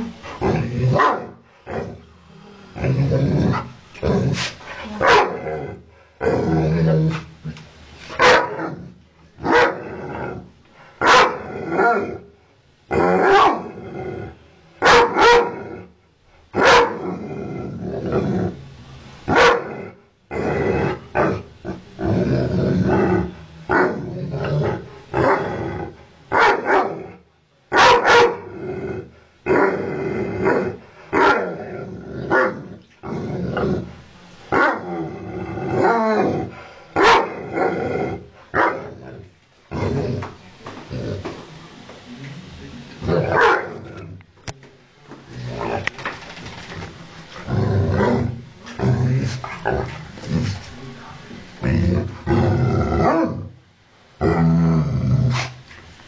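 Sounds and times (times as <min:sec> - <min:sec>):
dog growling: 0:00.0 - 0:07.6, 0:08.5 - 0:10.5, 0:19.6 - 0:26.0, 0:28.3 - 0:34.0, 0:34.7 - 0:41.4, 0:45.3 - 0:50.7, 0:51.6 - 0:53.6
dog barking: 0:01.0 - 0:01.4, 0:05.0 - 0:05.4, 0:08.2 - 0:08.6, 0:09.4 - 0:09.8, 0:11.0 - 0:11.4, 0:13.3 - 0:13.6, 0:14.8 - 0:15.6, 0:16.6 - 0:17.0, 0:19.3 - 0:19.8, 0:26.3 - 0:27.0, 0:27.7 - 0:28.5, 0:31.2 - 0:31.4, 0:37.0 - 0:37.4, 0:38.6 - 0:38.9, 0:43.3 - 0:43.8.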